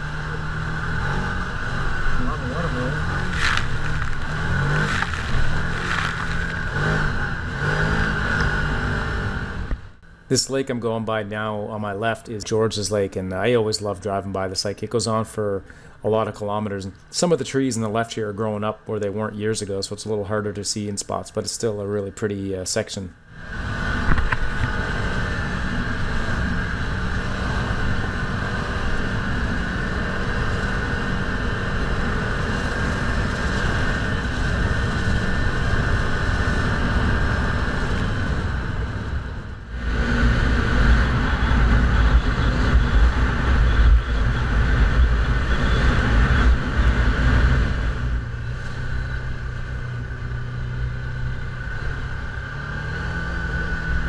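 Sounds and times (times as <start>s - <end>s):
low rumble: 0.0s - 8.6s
vehicle engine running: 0.0s - 13.9s, 23.3s - 54.0s
tyres on gravel: 2.2s - 8.6s.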